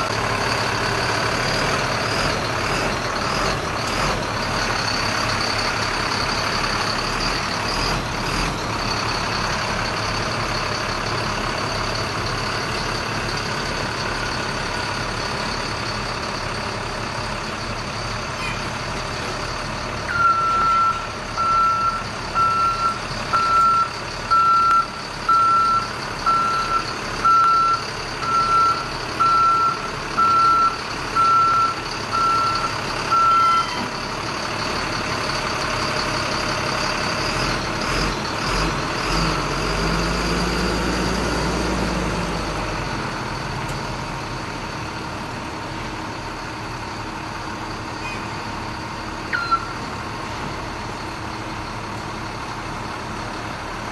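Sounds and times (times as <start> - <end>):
truck backup alarm beeping: 0.0 - 41.1, 41.7 - 53.4
truck engine revving and idling: 0.0 - 53.9.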